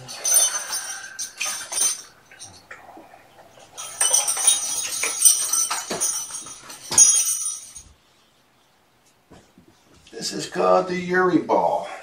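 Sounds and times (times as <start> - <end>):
metallic jingling and rattling: 0.0 - 8.0.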